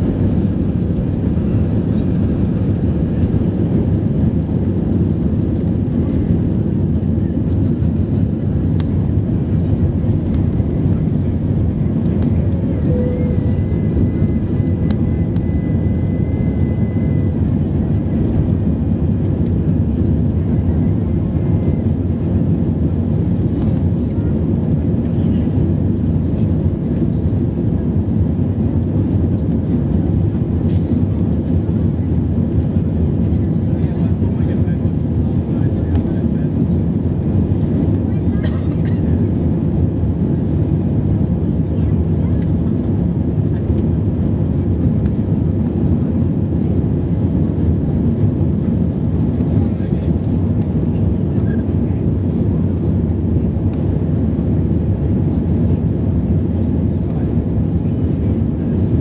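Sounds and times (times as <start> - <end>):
air rushing in cabin: 0.0 - 59.0
jet engines roaring: 0.0 - 59.0.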